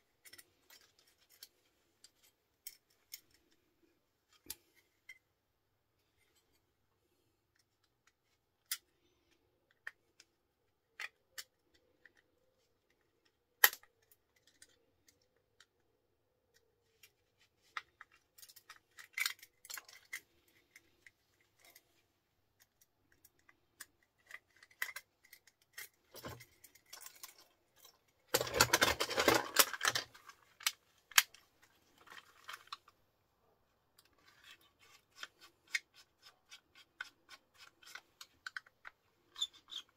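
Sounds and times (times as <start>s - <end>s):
plastic and metal parts clattering: 0.2s - 3.7s, 13.1s - 15.8s, 16.9s - 22.0s, 22.6s - 33.0s, 34.0s - 39.9s.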